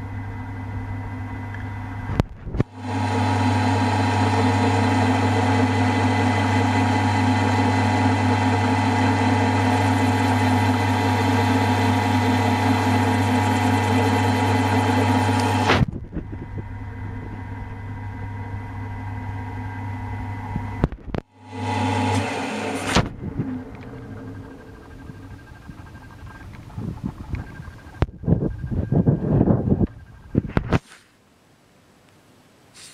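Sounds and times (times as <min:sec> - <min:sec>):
milling machine cutting metal: 0:02.8 - 0:15.9, 0:21.4 - 0:28.8.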